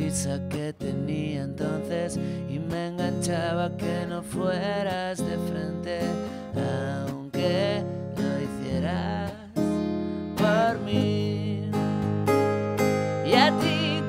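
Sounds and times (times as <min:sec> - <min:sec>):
man singing: 0:00.0 - 0:12.0, 0:13.2 - 0:14.0
acoustic guitar strumming: 0:00.0 - 0:14.0.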